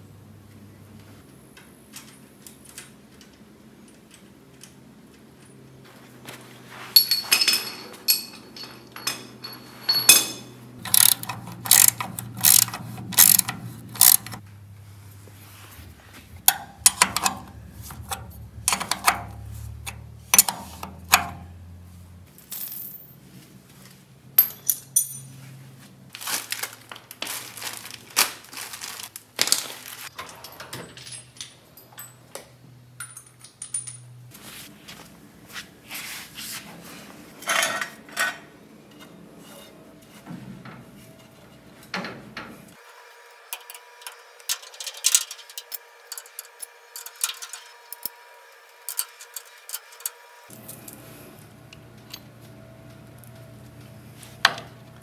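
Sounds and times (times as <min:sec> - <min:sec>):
metal hand tools clinking: 0:07.0 - 0:14.4
wrench knocking against metal: 0:10.8 - 0:14.4, 0:16.4 - 0:21.4.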